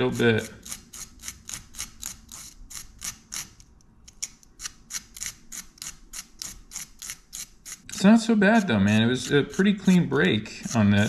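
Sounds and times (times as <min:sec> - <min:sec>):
sandpaper rubbing: 0:04.6 - 0:11.0.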